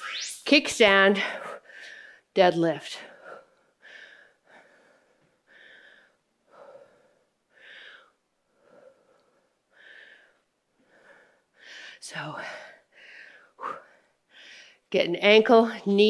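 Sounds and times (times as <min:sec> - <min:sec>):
woman breathing hard: 0:03.1 - 0:14.9.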